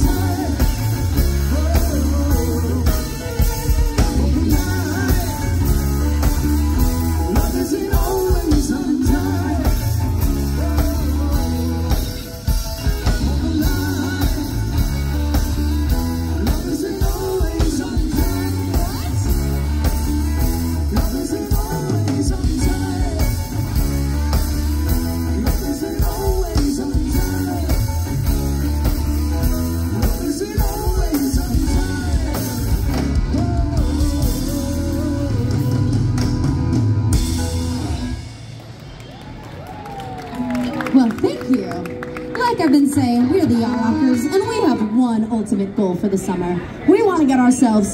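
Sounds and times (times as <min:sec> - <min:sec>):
person singing: 0:00.0 - 0:37.3
rock band playing: 0:00.0 - 0:47.9.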